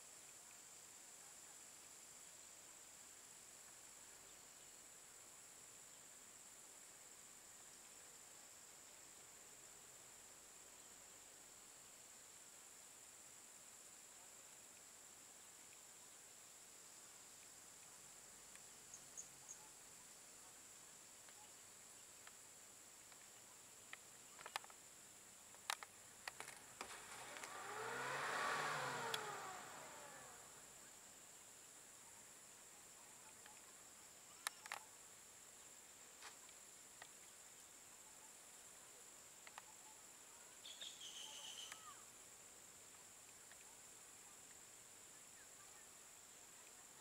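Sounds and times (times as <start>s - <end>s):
high insect drone: 0.0s - 47.0s
sharp clicks: 25.5s - 27.6s
shrill insect buzzing call: 25.7s - 31.5s, 39.6s - 42.2s
motor vehicle passing: 26.2s - 31.2s.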